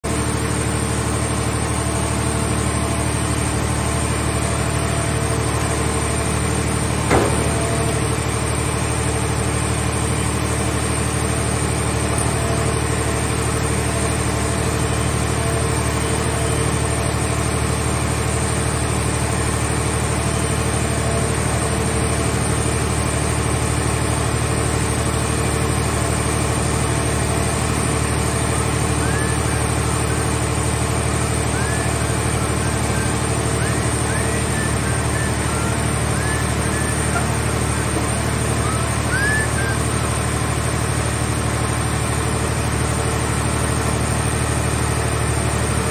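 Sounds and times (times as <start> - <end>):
hydraulic machinery humming: 0.1 - 45.9
loud metal clank: 7.0 - 8.2.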